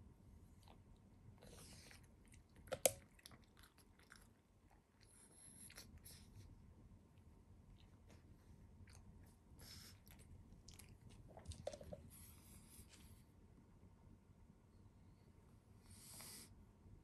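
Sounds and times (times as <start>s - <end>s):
dog chewing and crunching treat: 1.4s - 5.9s, 9.9s - 12.5s.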